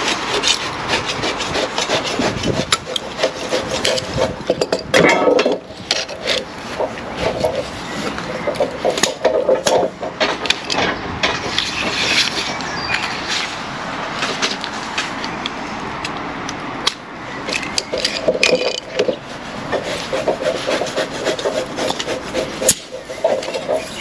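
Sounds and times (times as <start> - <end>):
handling clicks and rattles: 16.9 - 19.2.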